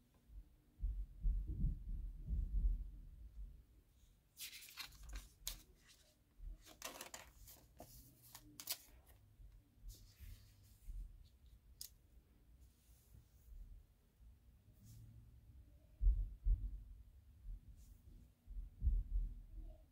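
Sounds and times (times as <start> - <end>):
photo prints rustling and tapping: 4.4 - 9.2.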